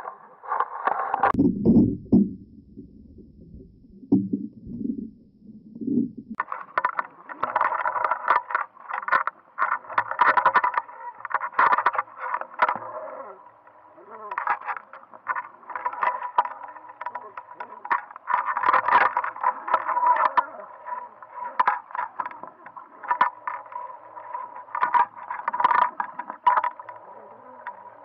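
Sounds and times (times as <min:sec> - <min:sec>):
muffled underwater rumble: 0:00.0 - 0:28.0
crackle of sharp clicks: 0:06.4 - 0:28.0.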